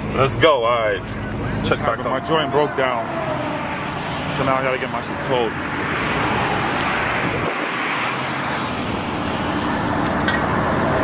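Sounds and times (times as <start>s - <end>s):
road traffic noise: 0.0s - 11.0s.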